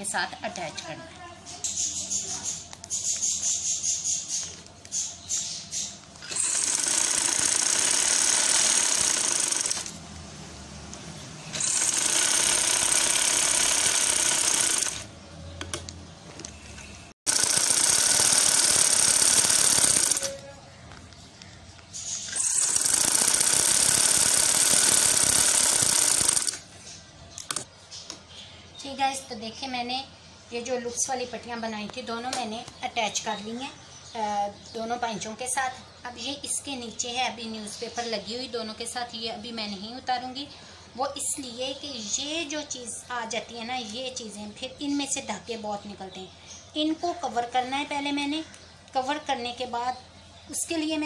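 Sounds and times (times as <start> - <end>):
sewing machine stitching: 6.2 - 10.0, 11.5 - 15.1, 17.3 - 20.4, 22.3 - 26.6.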